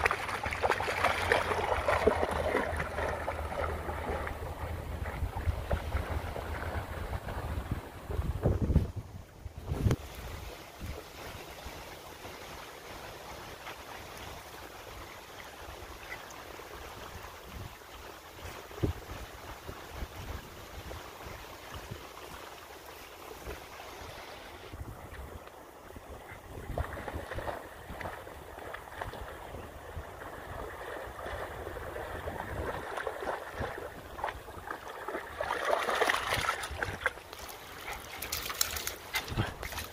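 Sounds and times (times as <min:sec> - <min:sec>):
dog splashing in water: 0:00.0 - 0:06.8, 0:30.4 - 0:39.9
creek water flowing: 0:00.0 - 0:39.9
wind on microphone: 0:01.6 - 0:11.8, 0:17.0 - 0:22.2, 0:23.4 - 0:39.9.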